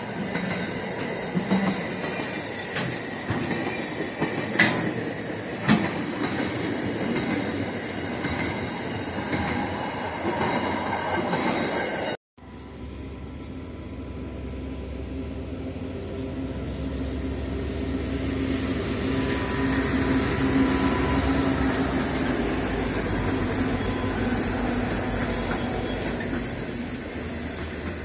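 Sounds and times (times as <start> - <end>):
train wagons rolling: 0.0 - 12.1, 19.3 - 28.0
diesel locomotive engine drone: 0.0 - 28.0.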